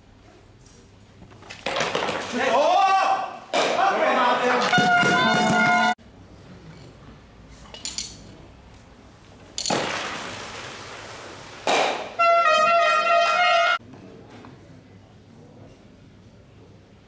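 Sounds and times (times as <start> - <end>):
person shouting: 2.4 - 5.9.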